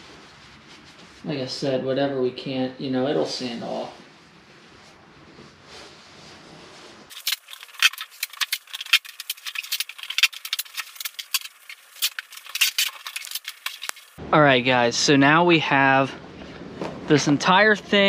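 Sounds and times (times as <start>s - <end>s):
tape being pulled and torn: 7.1s - 14.2s.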